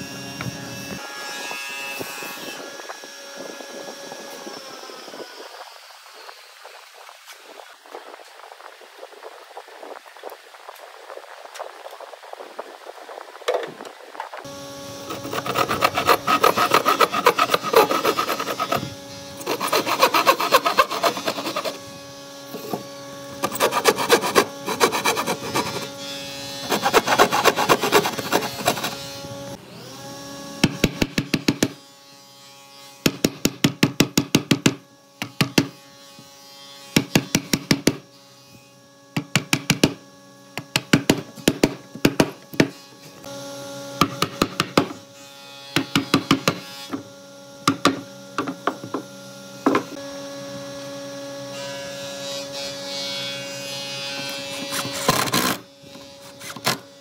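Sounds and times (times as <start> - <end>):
handsaw cutting wood: 15.0 - 29.3, 45.7 - 47.0, 52.4 - 57.0.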